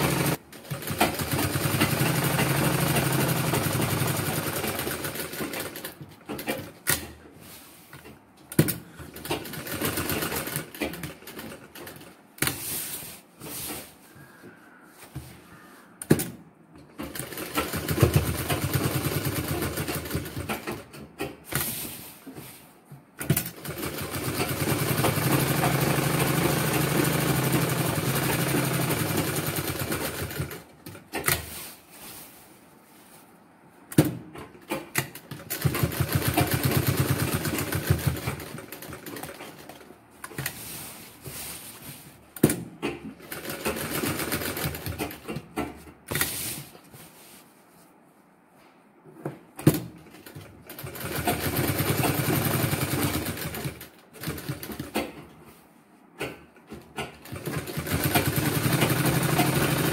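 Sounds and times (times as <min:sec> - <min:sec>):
sewing machine stitching: 0:00.0 - 0:07.2, 0:16.9 - 0:22.6, 0:23.2 - 0:31.8, 0:33.9 - 0:41.5, 0:42.5 - 0:46.4, 0:49.6 - 0:55.2, 0:56.2 - 0:59.9
sewing machine clicks: 0:56.2 - 0:59.9.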